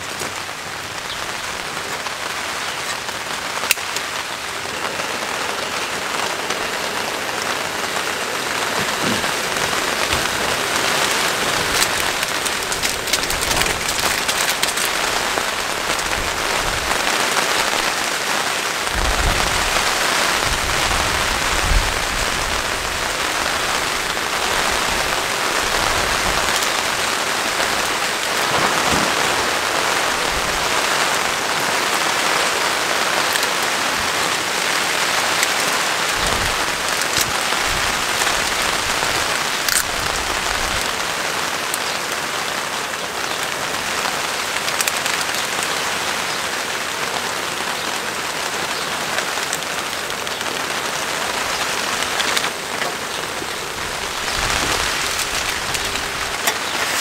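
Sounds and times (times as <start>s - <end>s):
rain on a tarp: 0.0s - 57.0s.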